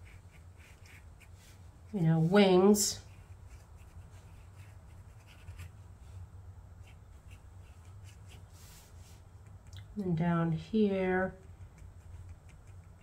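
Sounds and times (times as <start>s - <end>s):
marker scratching on paper: 0.0s - 5.8s, 6.8s - 9.7s, 11.4s - 13.0s
low steady hum: 0.0s - 13.0s.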